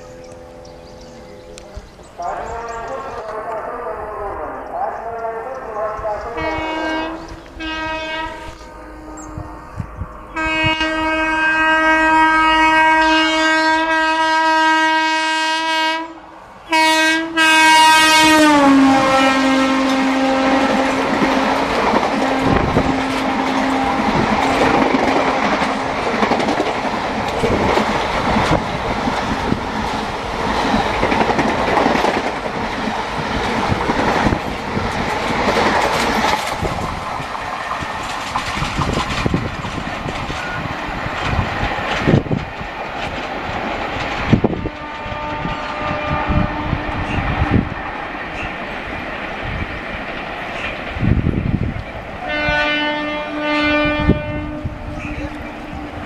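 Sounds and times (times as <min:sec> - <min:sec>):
train coaches rushing by: 0:00.0 - 0:56.0
train horn blasts: 0:05.8 - 0:25.7, 0:44.4 - 0:47.7, 0:52.2 - 0:56.0
wheels clattering over rail joints: 0:20.7 - 0:45.3.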